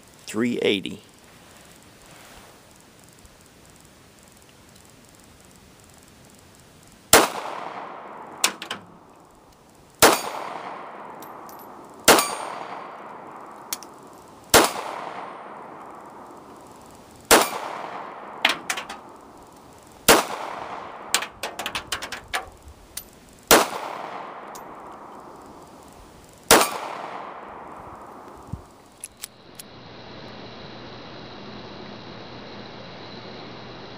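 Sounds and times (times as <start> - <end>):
pistol shots echoing: 7.1 - 9.1, 10.0 - 16.5, 17.3 - 22.4, 23.5 - 25.7, 26.5 - 28.4
metallic clinks: 11.1 - 12.6, 18.5 - 19.8, 21.2 - 23.3, 24.4 - 26.9.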